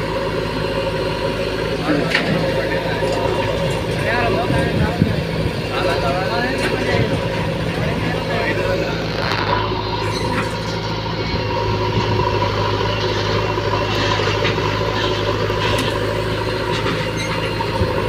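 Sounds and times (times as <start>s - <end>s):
diesel engines idling: 0.0s - 18.0s.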